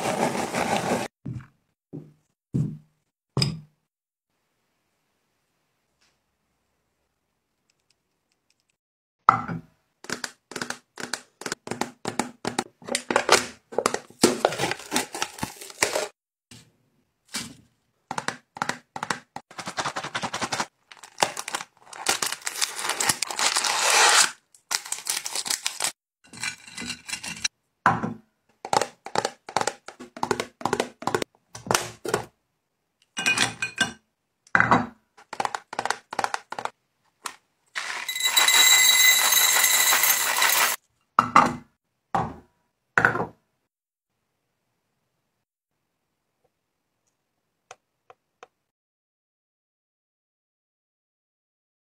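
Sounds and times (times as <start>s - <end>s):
packaging tearing and crinkling: 14.5s - 16.1s, 19.6s - 26.0s.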